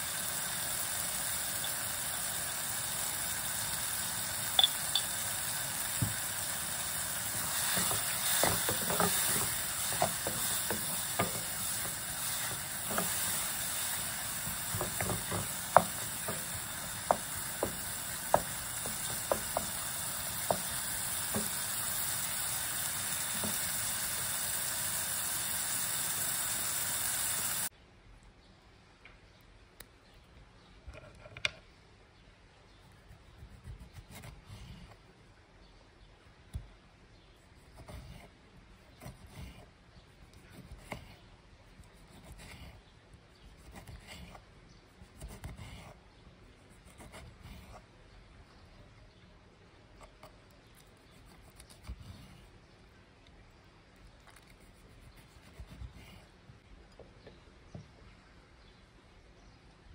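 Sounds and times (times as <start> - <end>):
mushrooms sizzling in a frying pan: 0.0 - 27.7
knife slicing tomato on board: 5.9 - 22.4
wooden spoon knocking on pan: 7.3 - 21.7.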